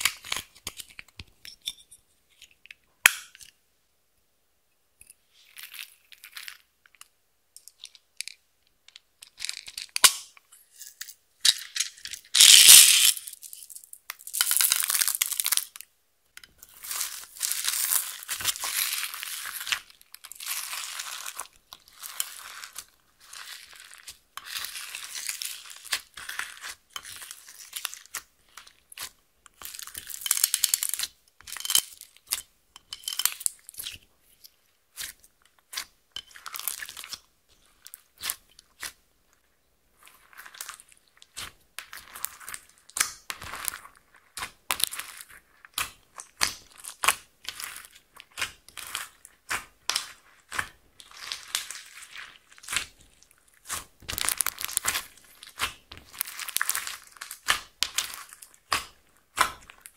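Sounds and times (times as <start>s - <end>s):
hands squishing crunchy slime: 11.6s - 13.4s, 16.6s - 32.4s, 33.1s - 39.0s, 39.9s - 59.9s.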